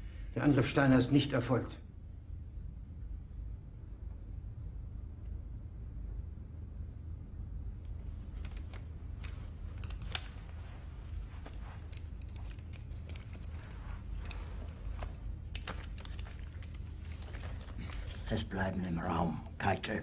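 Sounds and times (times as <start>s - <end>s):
low room rumble: 0.0s - 20.0s
eyeglasses clicking and rustling: 7.8s - 18.3s.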